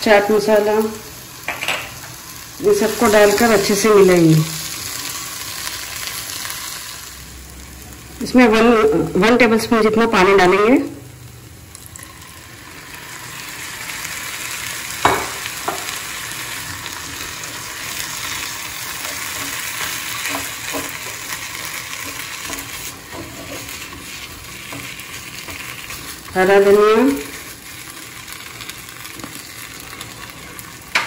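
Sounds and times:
food sizzling in a frying pan: 0.0s - 31.0s
spatula knocking on pan: 15.0s - 15.9s.

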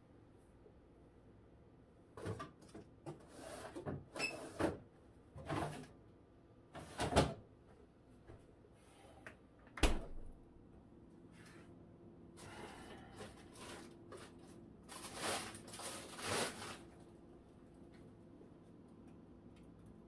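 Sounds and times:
refrigerator door thud: 9.8s - 10.3s.

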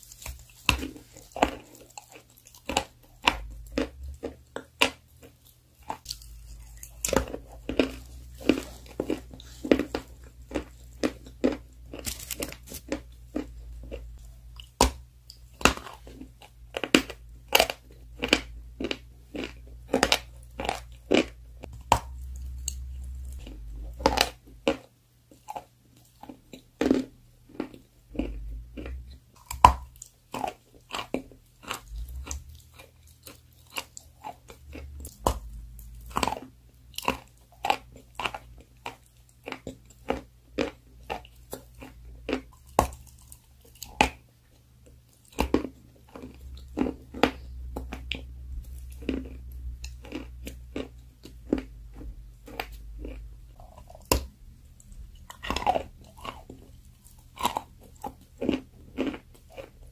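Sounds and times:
person chewing crunchy food: 0.0s - 59.9s
low hum: 21.4s - 24.6s.

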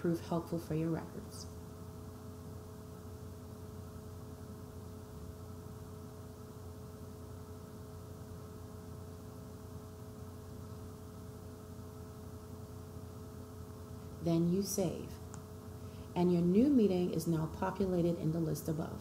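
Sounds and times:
steady electrical hum: 0.0s - 19.0s.

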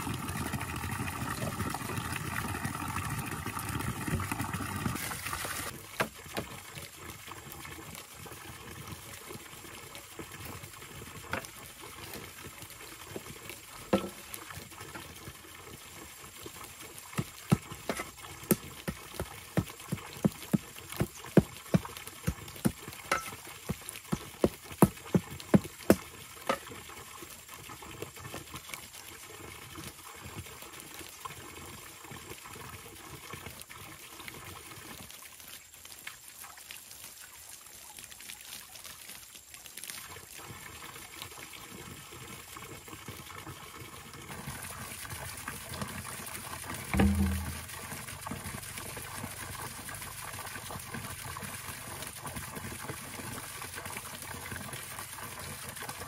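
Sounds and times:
water trickling and pouring: 0.0s - 56.0s
dull thump: 46.9s - 47.8s.

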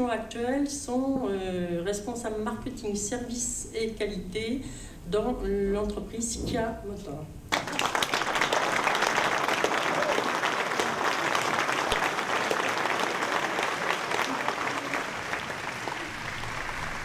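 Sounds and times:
audience applauding: 7.5s - 17.0s.

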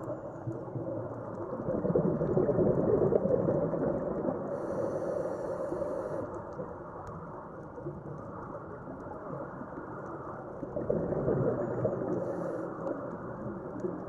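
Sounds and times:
exhaled bubbles burbling underwater: 0.0s - 4.9s, 7.1s - 14.0s
regulator hissing inhale: 4.5s - 6.5s.

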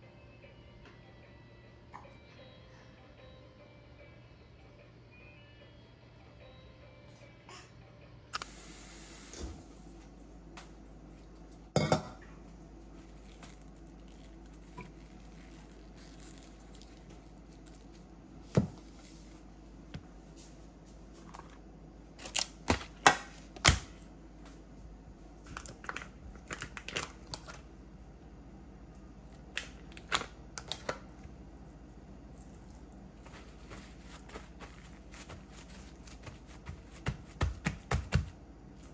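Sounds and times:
steady low hum: 0.0s - 38.9s.

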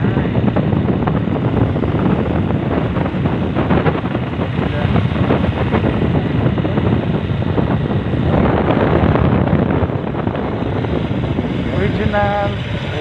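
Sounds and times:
moving vehicle running noise: 0.0s - 13.0s
wind rushing on microphone: 0.0s - 13.0s.

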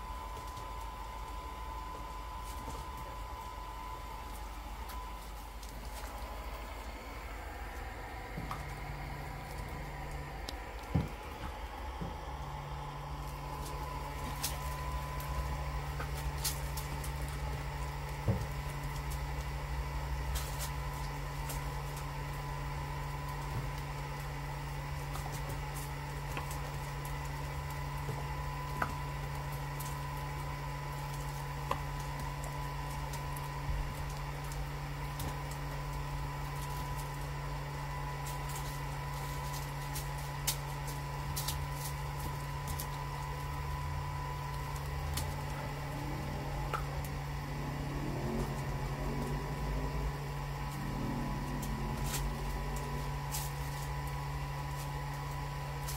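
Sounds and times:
bubble machine motor humming: 0.0s - 55.9s.

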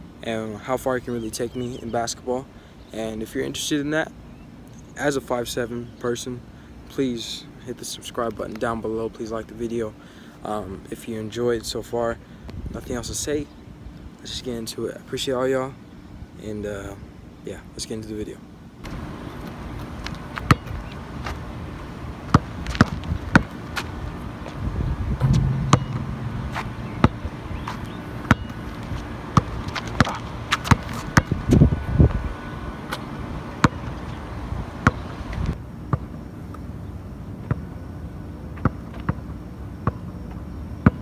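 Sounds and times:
low background noise: 0.0s - 31.0s
basketball bouncing on asphalt: 19.8s - 21.4s, 22.3s - 23.9s, 25.2s - 31.6s, 33.6s - 33.9s, 34.8s - 35.0s, 38.6s - 40.0s.

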